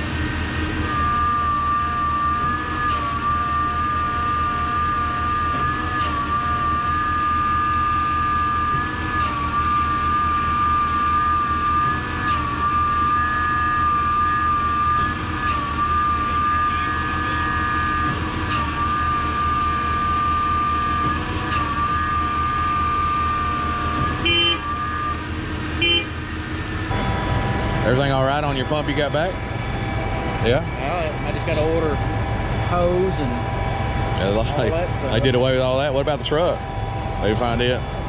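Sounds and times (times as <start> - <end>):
diesel engine low pulsing: 0.0 - 38.0
hydraulic whine: 0.0 - 38.0
brief higher tone: 0.8 - 25.3.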